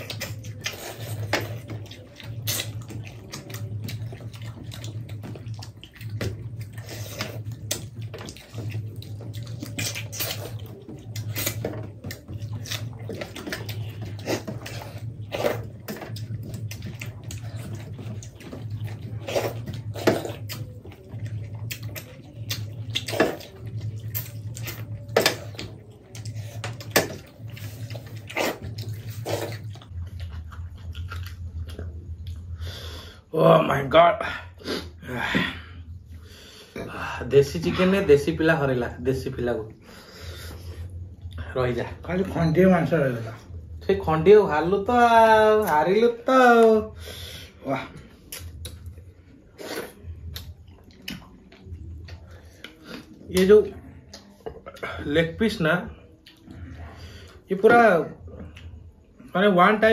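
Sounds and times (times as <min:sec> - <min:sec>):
wet squelching and chewing: 0:00.0 - 0:33.2, 0:45.6 - 0:59.3
low pulsing hum: 0:00.0 - 0:33.3.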